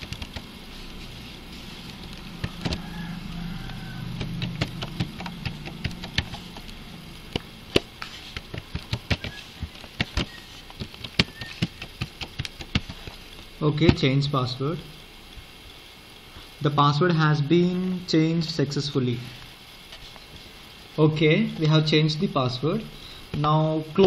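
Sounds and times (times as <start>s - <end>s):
low hum: 0.0s - 11.7s.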